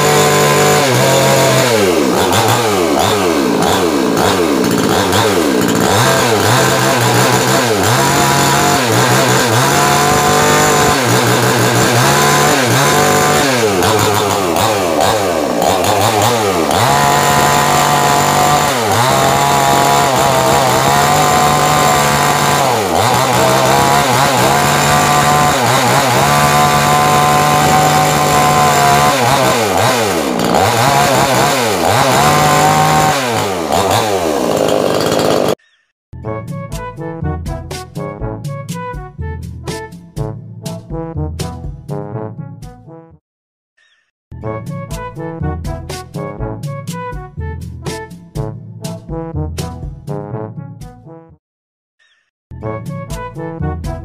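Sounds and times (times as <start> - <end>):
chainsaw cutting a log: 0.0 - 35.6.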